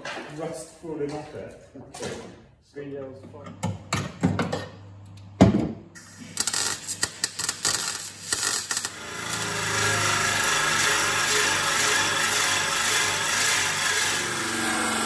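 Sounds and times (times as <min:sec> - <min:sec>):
angle grinder on steel: 0:06.3 - 0:15.0.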